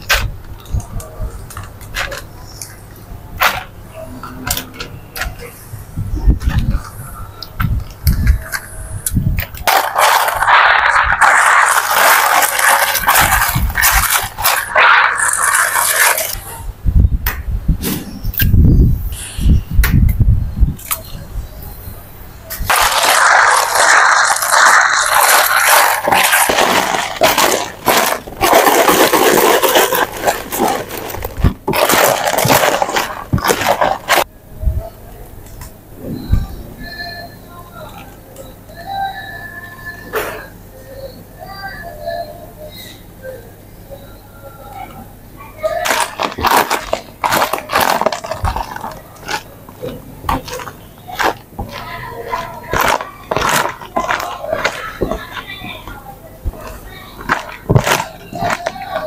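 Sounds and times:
ice cubes knocking on plastic: 22.7 - 34.2, 45.8 - 55.4, 56.6 - 59.0.

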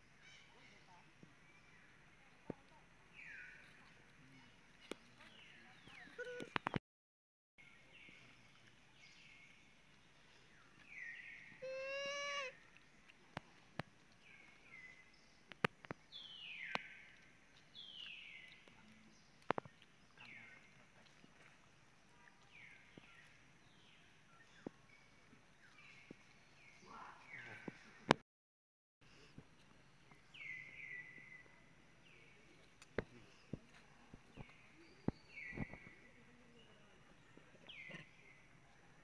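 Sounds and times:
infant monkey squeaking calls: 11.6 - 12.6.

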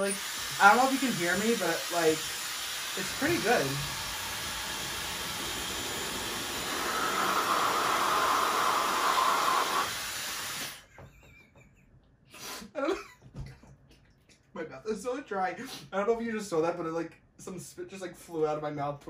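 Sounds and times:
hair dryer blowing air: 0.0 - 10.9.

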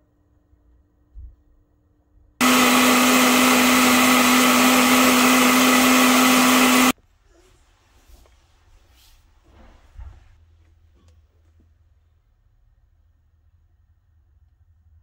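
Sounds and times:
blender motor running: 2.4 - 6.9.

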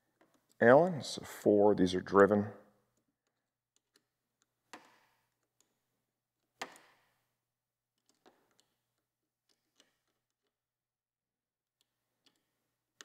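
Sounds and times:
faint metal clicks: 11.7 - 13.0.

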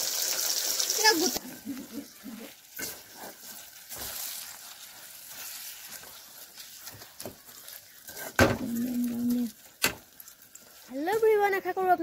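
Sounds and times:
food sizzling in hot oil: 0.0 - 12.0
wooden spatula scraping: 1.4 - 11.9.

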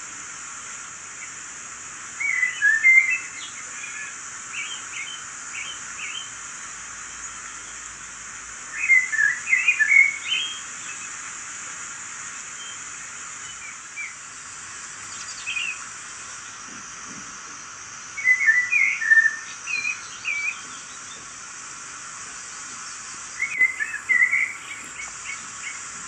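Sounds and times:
rushing falling water: 0.0 - 26.0
birds chirping: 22.2 - 26.0.

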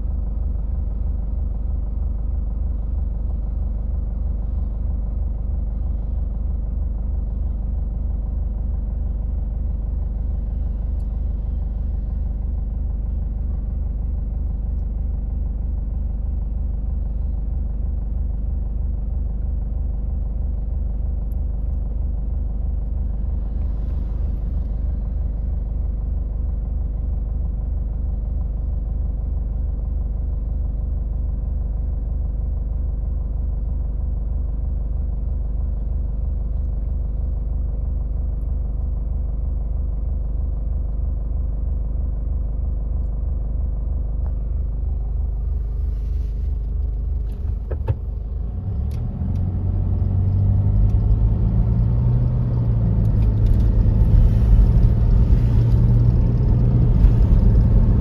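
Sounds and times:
car engine and road noise: 0.0 - 32.5, 43.0 - 58.0
car engine idling: 0.0 - 58.0
click: 14.7 - 14.9, 48.9 - 49.5.

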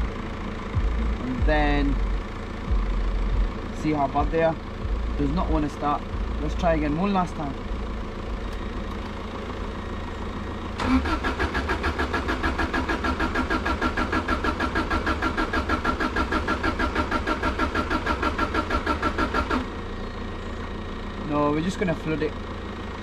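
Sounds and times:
car engine cranking on starter: 8.3 - 22.2.

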